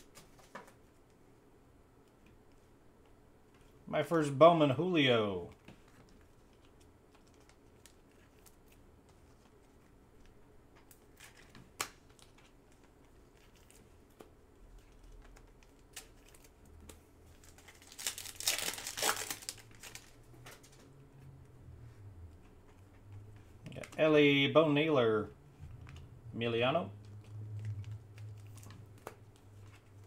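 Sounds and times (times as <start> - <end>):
foil wrapper crinkling and tearing: 6.2 - 9.6, 17.3 - 20.8.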